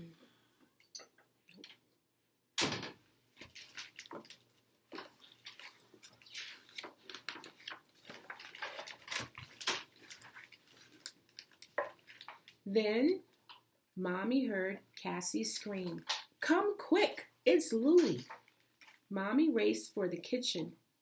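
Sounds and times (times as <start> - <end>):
paper pages turning: 3.4 - 12.6.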